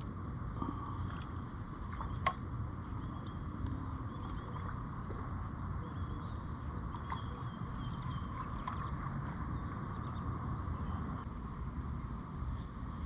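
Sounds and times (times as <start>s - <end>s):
water noise around kayak: 0.0s - 11.2s
wind rumble on microphone: 0.0s - 13.0s.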